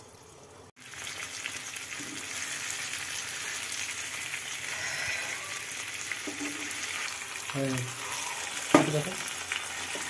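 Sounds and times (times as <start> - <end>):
chicken sizzling in a pan: 0.0 - 10.0.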